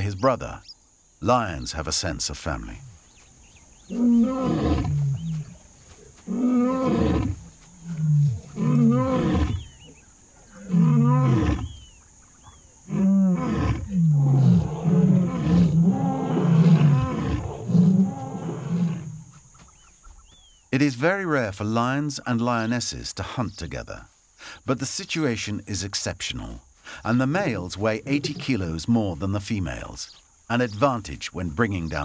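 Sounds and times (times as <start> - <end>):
lion roaring: 3.9 - 5.6, 6.3 - 9.6, 10.5 - 11.7, 12.9 - 19.3.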